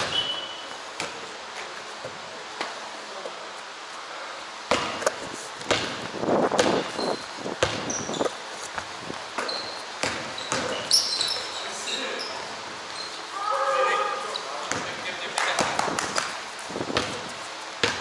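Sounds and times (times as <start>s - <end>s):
basketball bouncing on wooden floor: 4.7s - 5.0s, 5.6s - 8.3s, 9.4s - 11.0s, 14.7s - 14.9s, 16.9s - 18.0s.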